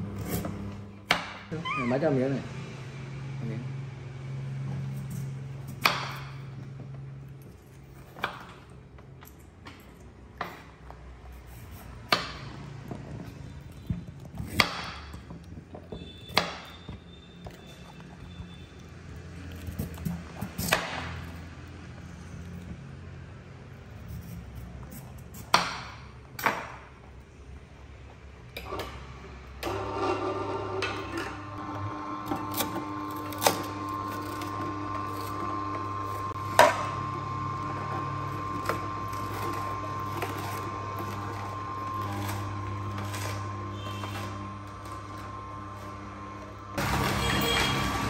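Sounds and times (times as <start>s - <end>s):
juicer motor humming: 0.0s - 8.9s, 28.6s - 48.0s.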